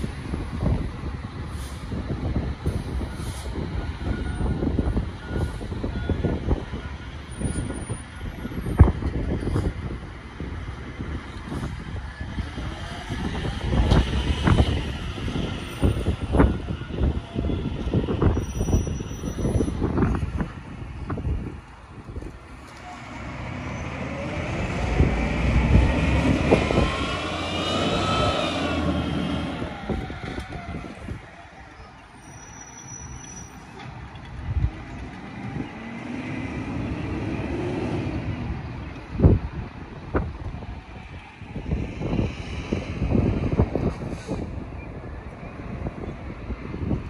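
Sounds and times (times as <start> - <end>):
garbage truck engine pulling away: 22.6 - 31.0
rising and falling whine: 23.0 - 31.0.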